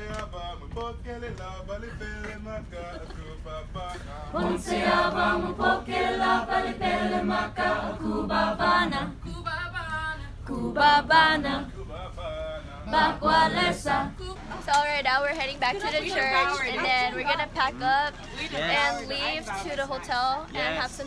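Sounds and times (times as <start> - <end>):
steady low hum: 0.0 - 21.0
choir singing a cappella: 2.0 - 14.6.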